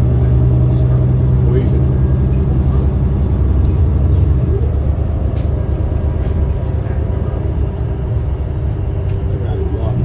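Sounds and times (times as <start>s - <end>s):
bus engine and road drone: 0.0s - 10.0s.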